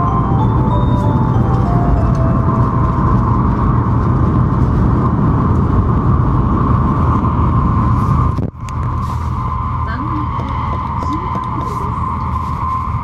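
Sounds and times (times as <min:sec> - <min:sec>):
high whine: 0:00.0 - 0:08.5
train cabin rumble and hum: 0:00.0 - 0:13.0.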